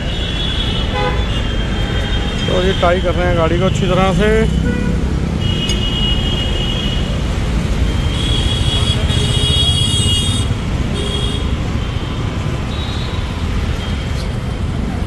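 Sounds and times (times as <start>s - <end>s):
horn tooting: 0.0s - 7.2s
road traffic rumble: 0.0s - 15.0s.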